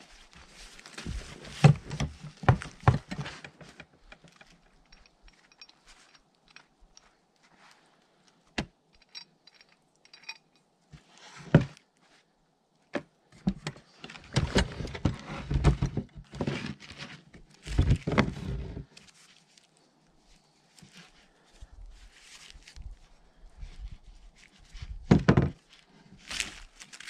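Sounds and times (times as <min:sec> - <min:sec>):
chainsaw parts clunking and rattling: 0:00.9 - 0:07.1, 0:13.0 - 0:19.0.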